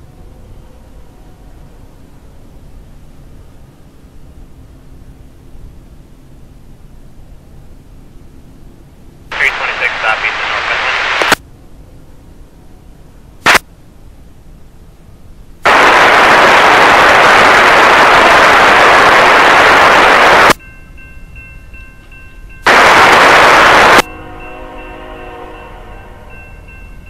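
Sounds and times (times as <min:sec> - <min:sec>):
low hiss with faint tones: 0:00.1 - 0:27.0
radio static bursts: 0:09.3 - 0:11.4, 0:15.7 - 0:20.6, 0:22.7 - 0:24.1.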